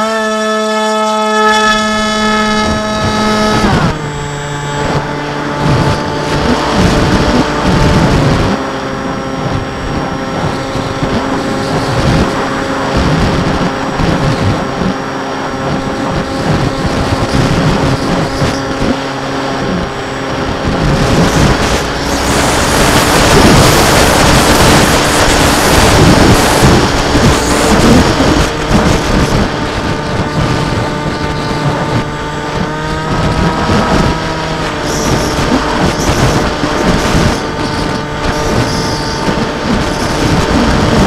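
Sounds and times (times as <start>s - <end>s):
model aircraft motor whine: 0.0s - 41.0s
wind noise on microphone: 0.0s - 41.0s.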